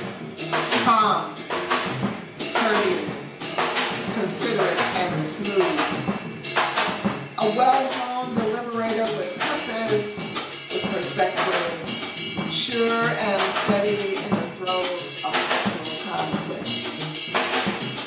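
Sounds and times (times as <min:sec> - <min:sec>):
cymbal and snare strokes: 0:00.0 - 0:18.0
jazz drum kit: 0:00.0 - 0:18.0
upright double bass playing: 0:00.0 - 0:18.0.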